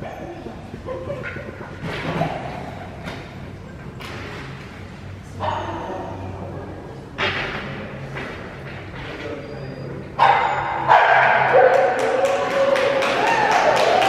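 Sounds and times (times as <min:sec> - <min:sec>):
low steady hum: 0:00.0 - 0:14.0
dogs barking in a hall: 0:05.3 - 0:06.4, 0:09.2 - 0:14.0.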